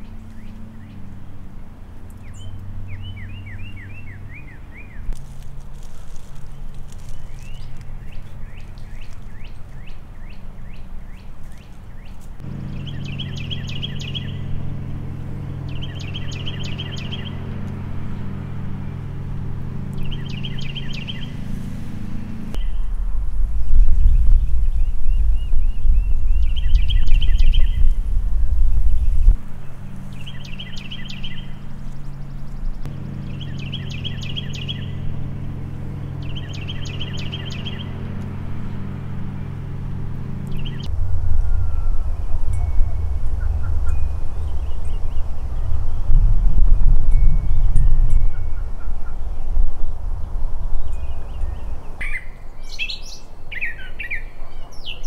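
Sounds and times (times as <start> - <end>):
songbird trilling: 2.2 - 5.2, 7.0 - 18.7, 19.8 - 21.6, 23.7 - 28.1, 28.8 - 38.9, 40.4 - 49.8, 50.6 - 55.0
lawn mower engine running: 12.4 - 22.6, 29.4 - 47.2
low rumble: 12.4 - 52.6.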